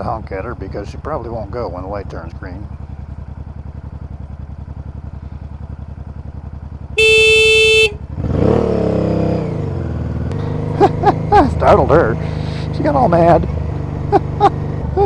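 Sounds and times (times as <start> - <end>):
motorcycle engine idling and revving: 0.0 - 15.0
motorcycle horn beep: 7.0 - 8.2.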